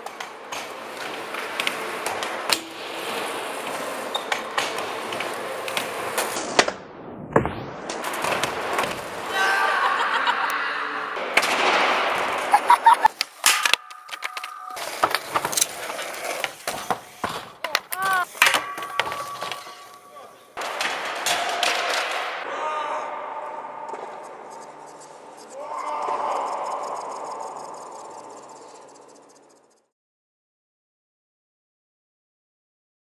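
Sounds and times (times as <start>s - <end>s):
skateboard wheels rolling: 0.0s - 6.8s, 7.8s - 10.3s, 11.2s - 22.4s
skateboard deck cracking and slapping: 11.4s - 19.7s.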